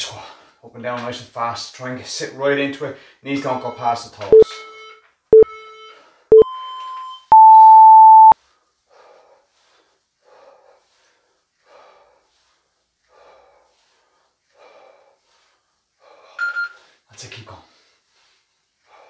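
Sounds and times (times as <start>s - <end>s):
faint breaths: 2.8s - 3.3s, 8.4s - 19.0s
timer beeps: 4.3s - 8.4s, 16.4s - 16.8s.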